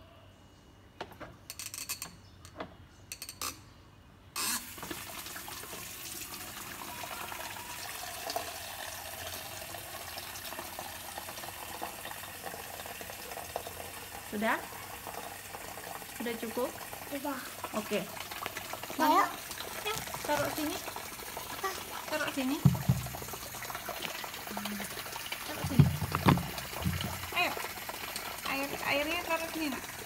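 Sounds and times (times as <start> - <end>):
tap water running into plastic dipper: 4.4 - 30.0
light knocks: 22.6 - 23.3.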